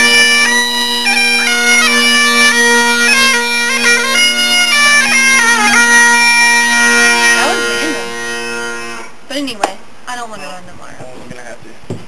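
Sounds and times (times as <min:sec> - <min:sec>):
bagpipe melody over drone: 0:00.0 - 0:09.2.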